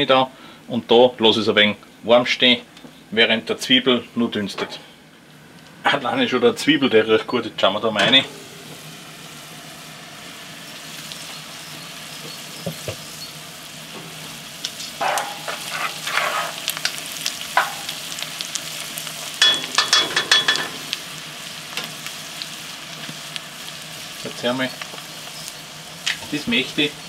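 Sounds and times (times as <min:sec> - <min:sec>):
onions sizzling in fat: 0:07.6 - 0:27.0
wooden spoon scraping and stirring: 0:14.2 - 0:17.0.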